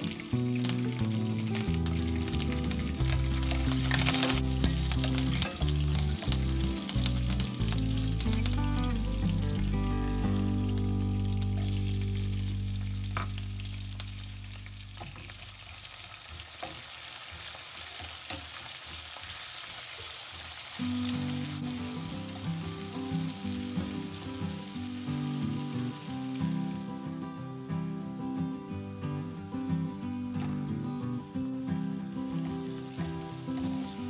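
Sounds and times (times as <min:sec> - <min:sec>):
stirring in a pan: 0:00.0 - 0:09.2, 0:15.0 - 0:20.9
background music: 0:00.0 - 0:14.5, 0:20.8 - 0:34.0
onions sizzling in hot oil: 0:00.0 - 0:27.2, 0:31.7 - 0:34.0.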